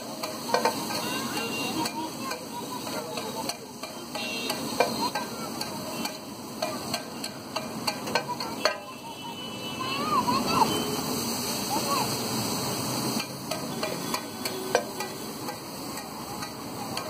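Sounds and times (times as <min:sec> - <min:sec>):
food sizzling on a griddle: 0:00.0 - 0:17.0.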